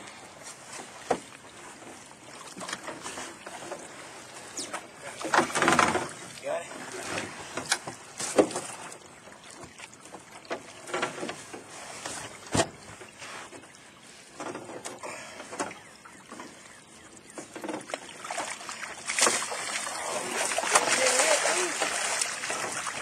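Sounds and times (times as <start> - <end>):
water splashing and sloshing: 0.0 - 23.0
net swishing through water: 18.0 - 23.0.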